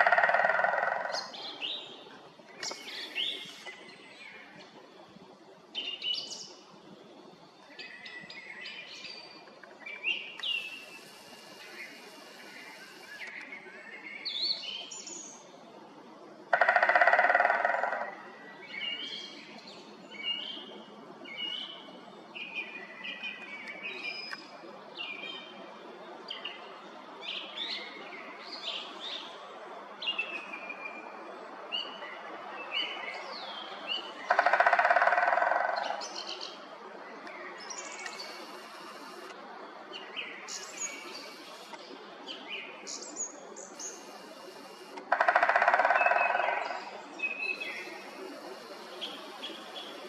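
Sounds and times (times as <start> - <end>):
woodpecker drumming on tree: 0.0 - 1.3, 16.5 - 18.2, 34.3 - 36.2, 44.5 - 47.0.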